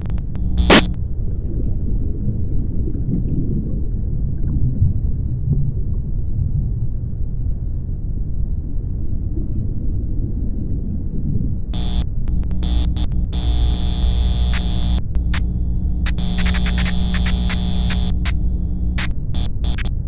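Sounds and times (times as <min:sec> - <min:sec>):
hum: 0:00.0 - 0:03.9, 0:11.6 - 0:20.0
low rumbling drone: 0:11.8 - 0:20.0.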